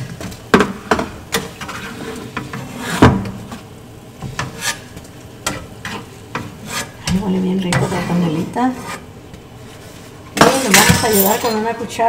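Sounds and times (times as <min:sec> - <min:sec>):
spatula scraping metal pan: 0:01.4 - 0:03.0, 0:04.2 - 0:07.1, 0:07.7 - 0:10.8.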